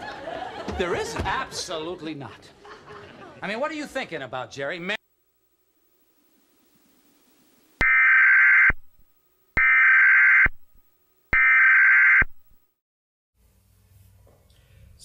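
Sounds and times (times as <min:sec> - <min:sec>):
buzzy digital data tone bursts: 0:05.6 - 0:09.0, 0:09.6 - 0:10.7.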